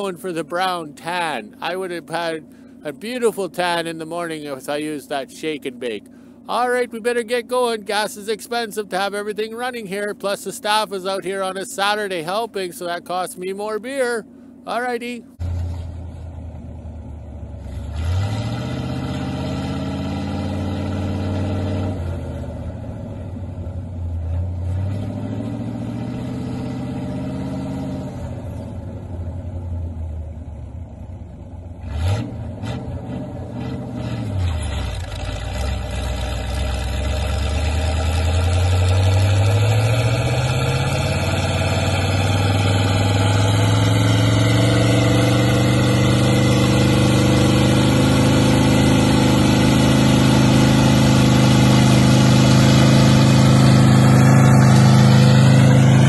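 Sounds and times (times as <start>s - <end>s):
tractor engine revving under load: 17.1s - 30.1s, 31.7s - 56.0s.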